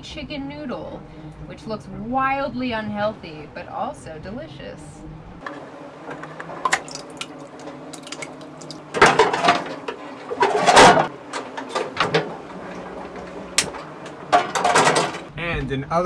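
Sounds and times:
soup clattering and sloshing: 5.5 - 15.3.

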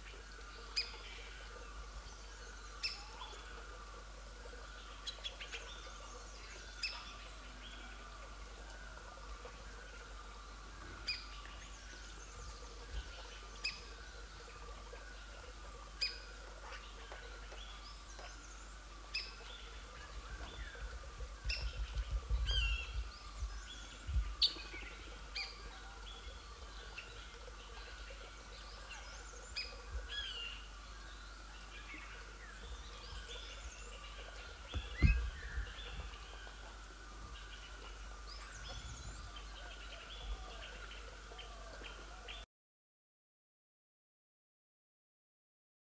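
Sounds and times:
forest birds calling: 0.0 - 42.5
low thumps: 34.7 - 36.1.

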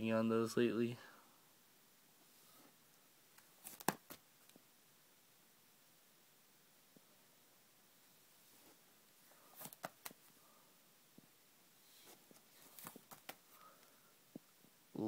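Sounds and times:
plastic binder pages turning: 3.4 - 4.2, 9.6 - 10.2, 12.3 - 13.4.

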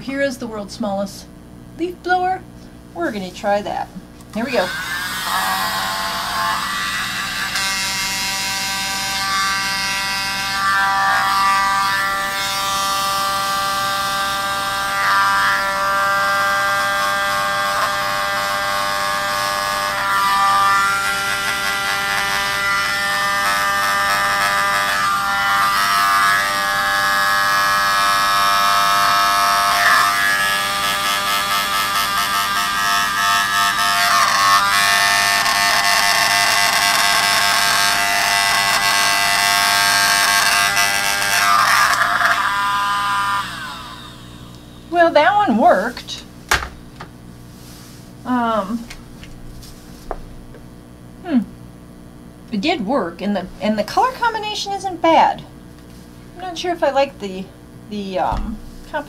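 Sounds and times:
small leaf blower motor whine: 4.5 - 46.0.

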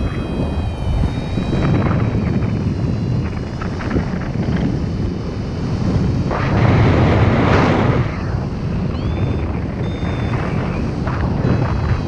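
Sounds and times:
short high beeps: 0.0 - 2.2
wind buffeting microphone: 0.0 - 12.0.

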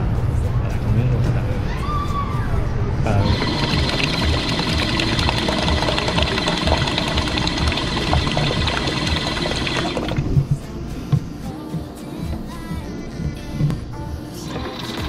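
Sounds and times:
dispenser pump running: 3.1 - 10.6, 14.4 - 15.0
drink pouring into plastic cup: 3.2 - 10.2, 14.5 - 15.0.

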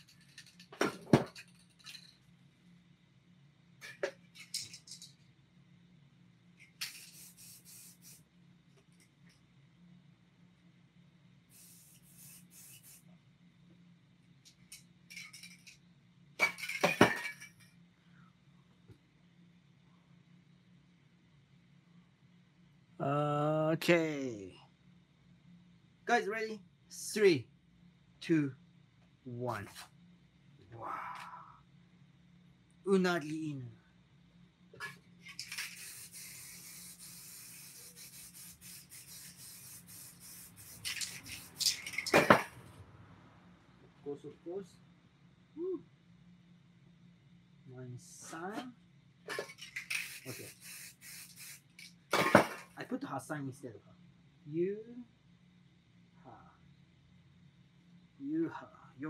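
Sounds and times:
faint steady hiss: 0.0 - 9.4, 11.4 - 15.8, 16.4 - 59.0
spray paint can hissing: 6.7 - 8.3, 11.5 - 13.1, 34.8 - 42.5, 49.3 - 52.7
light rubbing strokes: 11.6 - 13.1, 35.3 - 42.1.

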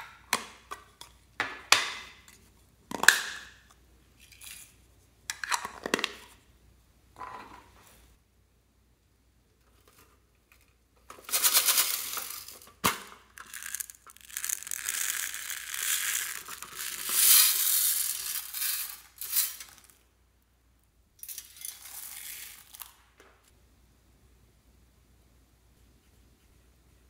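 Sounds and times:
plastic beads rattling in metal tin: 11.2 - 20.0, 21.2 - 23.0.

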